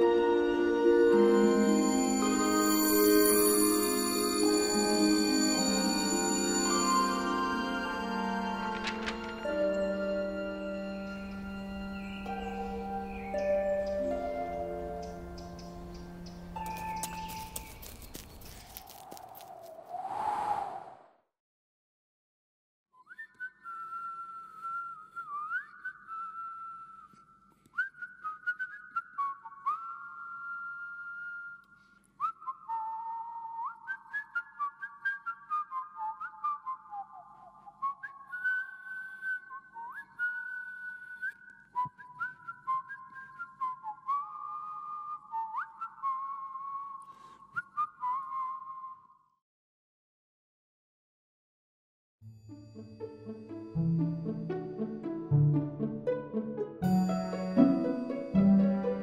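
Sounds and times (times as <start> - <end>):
person whistling a slow tune: 23.0 - 49.4.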